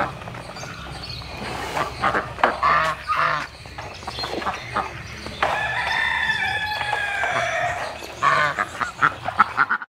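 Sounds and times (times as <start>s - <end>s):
rooster crowing: 5.5s - 8.0s.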